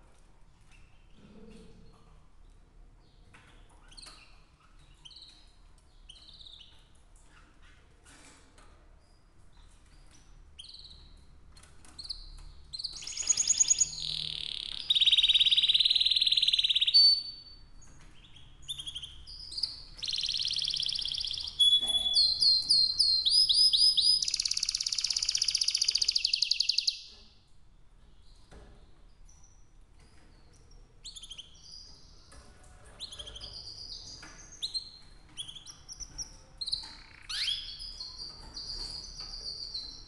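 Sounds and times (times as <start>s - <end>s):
canary singing trills: 12.0s - 27.4s, 31.0s - 32.4s, 33.0s - 40.0s.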